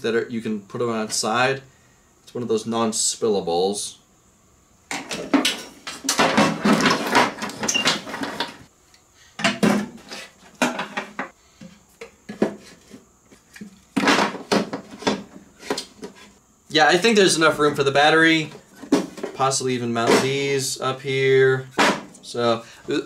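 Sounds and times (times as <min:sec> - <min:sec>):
wiring and plastic connectors clattering: 0:04.9 - 0:08.7.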